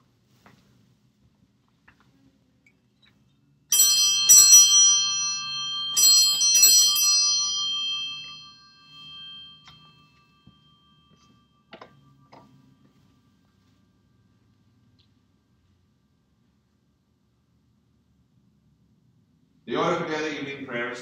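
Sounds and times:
small bell ringing: 0:03.7 - 0:13.6.

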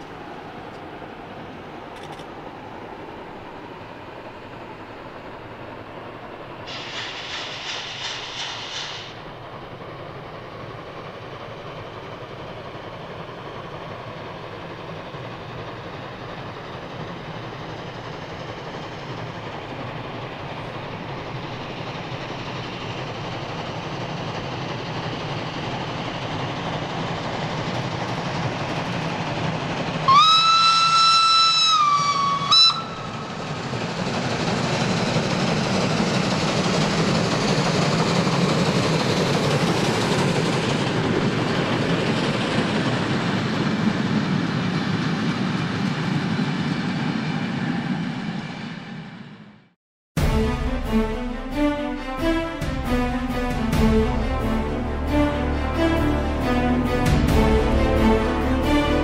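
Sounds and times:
steam locomotive running: 0:00.0 - 0:49.6, 0:50.2 - 0:59.0
steam whistle blast: 0:30.1 - 0:33.2.

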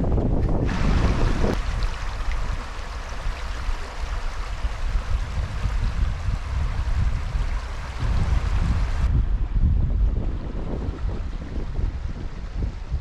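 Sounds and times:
stream running over stones: 0:00.0 - 0:09.1
wind rumble on microphone: 0:00.0 - 0:13.0.

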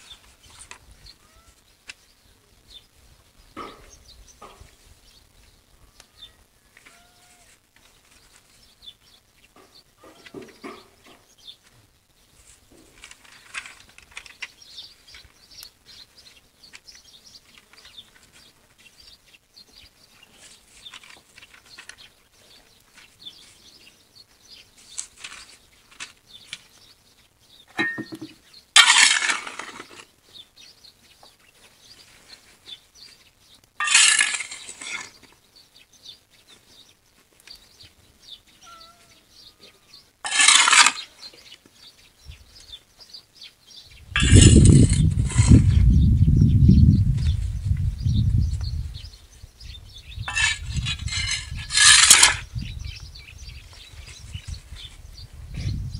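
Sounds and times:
paper sheets rustling: 0:20.4 - 0:22.0, 0:24.8 - 0:26.6
metal scoop scraping ashes: 0:28.8 - 0:30.1, 0:33.8 - 0:35.2, 0:40.2 - 0:41.1, 0:44.2 - 0:45.8, 0:50.3 - 0:52.5.

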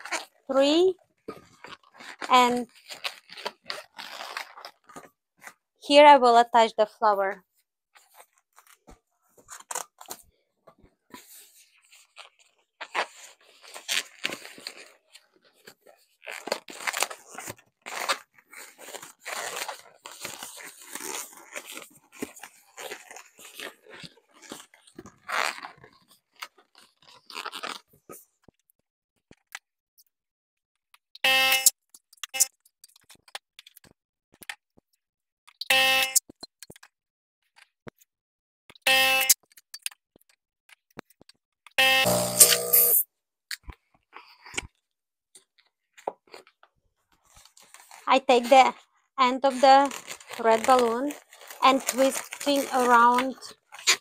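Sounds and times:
balloon latex squeaks: 0:00.0 - 0:00.4, 0:01.6 - 0:04.9, 0:11.8 - 0:15.4, 0:16.0 - 0:27.9, 0:41.8 - 0:43.0, 0:49.8 - 0:54.0
balloons rubbing and rustling: 0:01.3 - 0:05.6, 0:11.1 - 0:28.1, 0:49.3 - 0:54.0.

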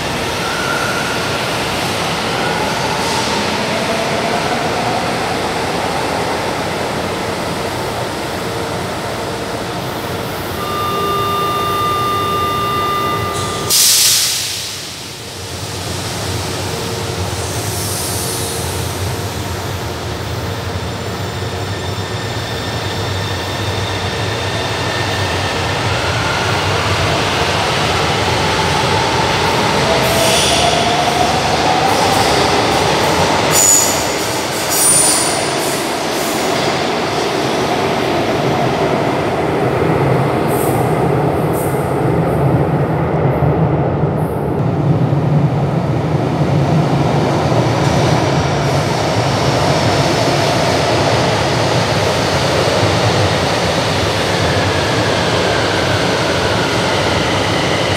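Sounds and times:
train passing with low rumble: 0:00.0 - 0:57.9
high wheel squeals: 0:10.6 - 0:14.1.

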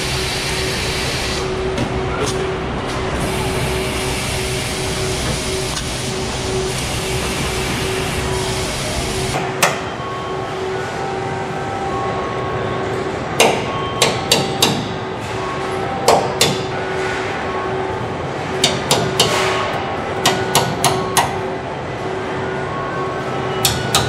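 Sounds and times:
steady factory hum: 0:00.0 - 0:24.0
hammer striking metal: 0:13.4 - 0:15.0, 0:16.0 - 0:17.2, 0:18.6 - 0:21.5, 0:23.6 - 0:24.0.

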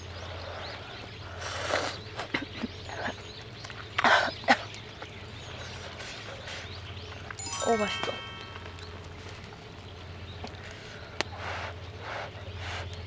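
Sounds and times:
birds chirping faintly: 0:00.0 - 0:13.0.

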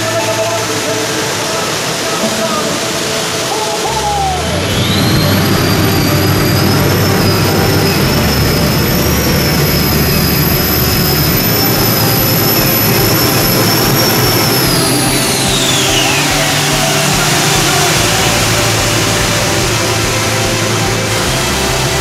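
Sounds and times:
turbine whine: 0:00.0 - 0:22.0
heavy low rumble: 0:02.2 - 0:22.0.

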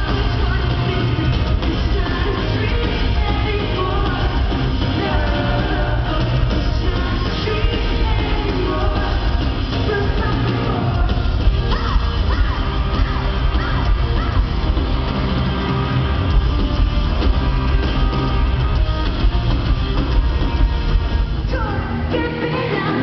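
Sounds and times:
person singing: 0:00.0 - 0:11.8
live rock band playing: 0:00.0 - 0:23.0.

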